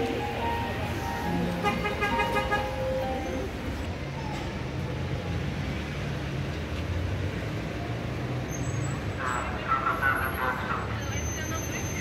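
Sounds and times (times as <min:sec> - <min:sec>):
passersby voices: 0:00.0 - 0:05.0, 0:09.1 - 0:12.0
city street traffic: 0:00.0 - 0:12.0.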